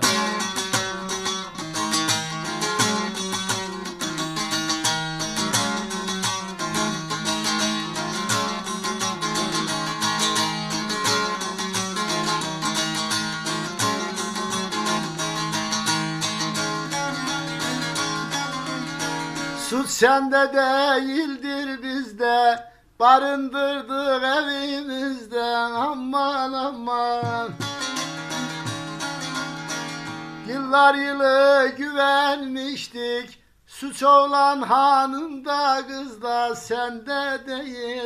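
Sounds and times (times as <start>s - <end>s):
saz folk melody: 0.0s - 38.0s.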